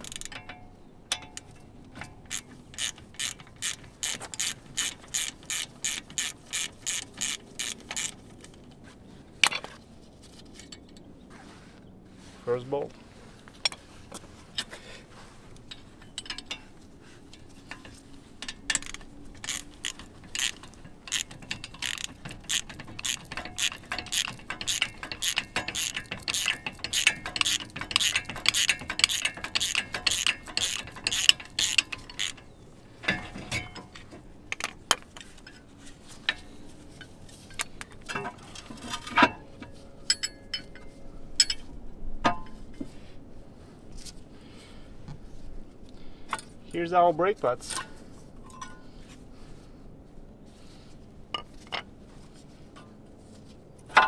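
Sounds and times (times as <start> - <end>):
socket ratchet clicking: 0.0 - 0.5, 1.1 - 8.3, 18.4 - 33.2
metal clicks and clinks: 0.0 - 8.7, 15.6 - 16.7, 17.3 - 35.6, 36.3 - 41.7.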